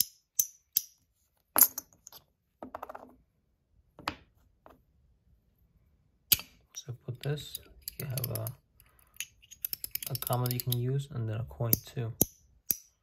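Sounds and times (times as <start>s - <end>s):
metal fidget toy clicking: 7.8s - 8.5s, 9.5s - 10.8s.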